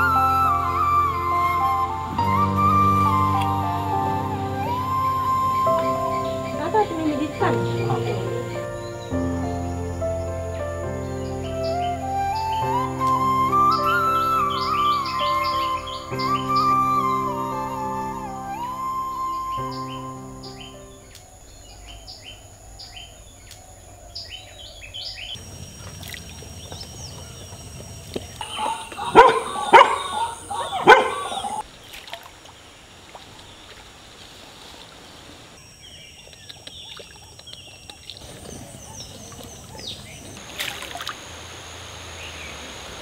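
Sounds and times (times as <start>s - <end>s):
small birds chirping: 0.0s - 33.8s, 35.5s - 42.9s
faint outdoor ambience: 0.0s - 43.0s
dog barking sharply: 28.5s - 31.6s.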